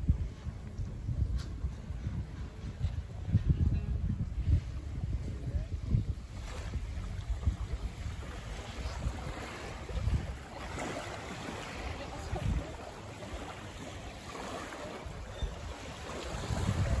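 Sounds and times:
wind buffeting microphone: 0.0 - 17.0
small waves lapping on sand: 4.4 - 17.0.

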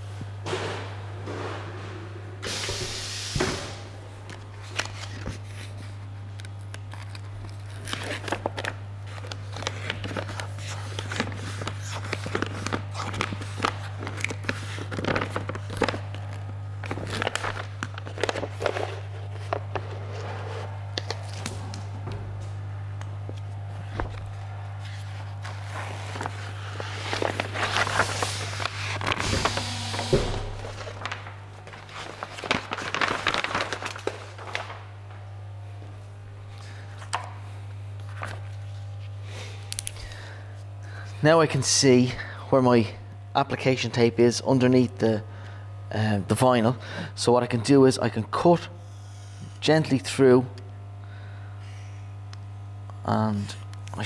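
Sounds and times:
steady low hum: 0.0 - 54.0
vinyl sheet rustling and crinkling: 4.2 - 22.6, 23.2 - 35.3, 37.7 - 39.2.

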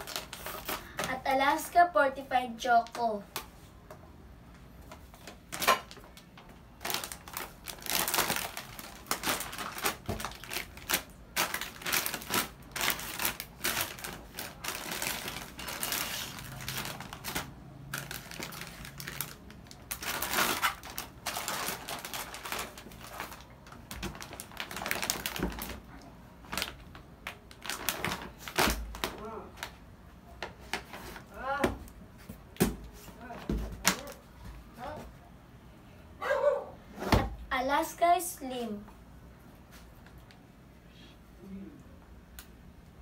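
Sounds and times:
plastic foil packs crinkling: 0.0 - 1.7, 5.2 - 29.8.

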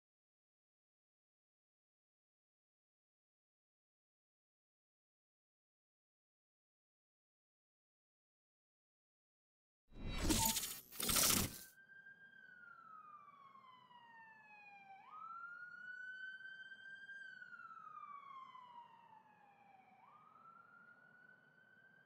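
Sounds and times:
siren wailing: 11.2 - 22.0.

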